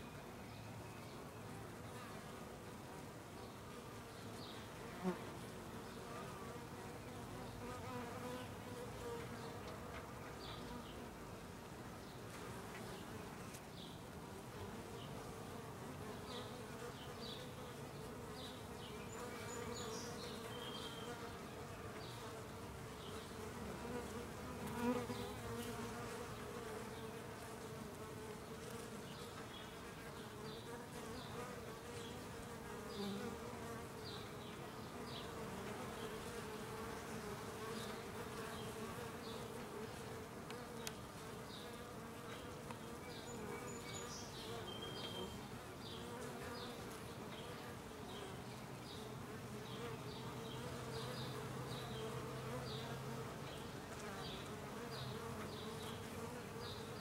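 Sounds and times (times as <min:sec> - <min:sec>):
bees buzzing: 0:14.4 - 0:57.0.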